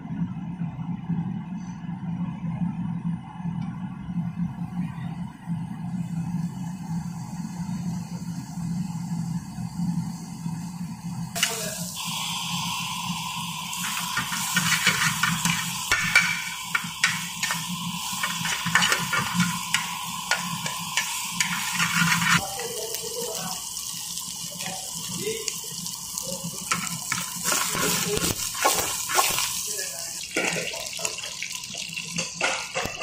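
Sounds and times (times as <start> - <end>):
fat sizzling in a pan: 6.2 - 33.0
metal spatula scraping a pan: 13.8 - 17.6, 18.2 - 22.4.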